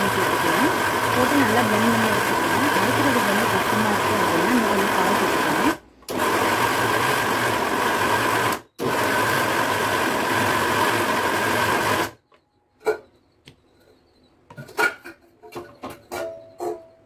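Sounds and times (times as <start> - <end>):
mixer grinder blending: 0.0 - 12.2.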